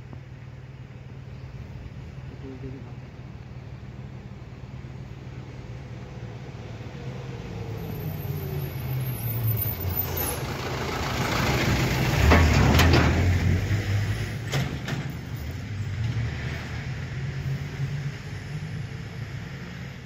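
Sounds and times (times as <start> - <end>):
vehicle engine running: 9.7 - 14.4.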